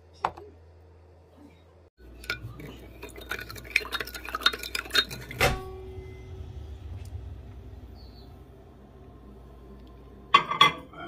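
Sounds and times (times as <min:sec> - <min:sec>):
metal spoon clinking against glass: 0:02.2 - 0:05.4.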